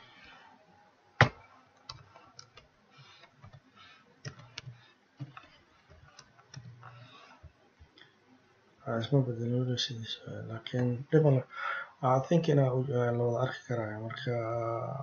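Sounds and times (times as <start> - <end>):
keyboard typing clicks: 4.2 - 6.9.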